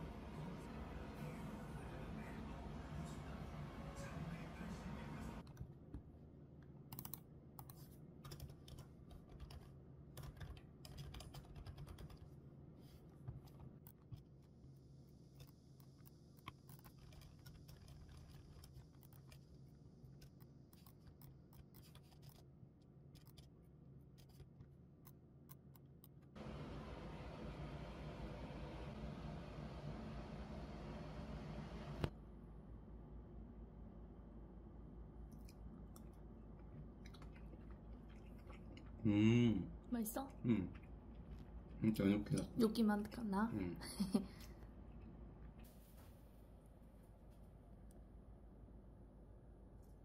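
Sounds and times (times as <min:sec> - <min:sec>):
typing on computer keyboard: 0:06.9 - 0:12.3.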